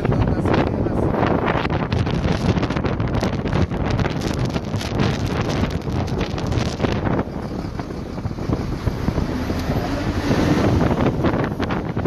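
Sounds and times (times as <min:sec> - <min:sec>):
wind buffeting microphone: 0:00.0 - 0:12.0
vehicle engine running: 0:02.7 - 0:12.0.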